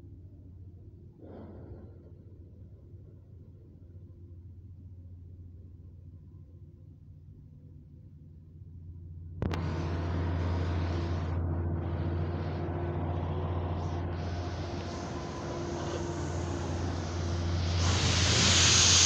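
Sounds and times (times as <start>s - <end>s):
heavy machinery humming: 9.4s - 19.0s.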